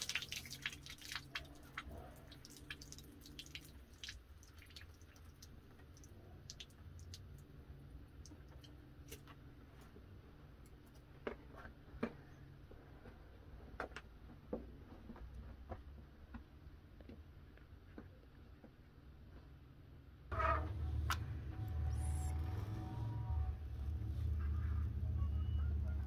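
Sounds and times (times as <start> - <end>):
low steady rumble: 12.6 - 26.0.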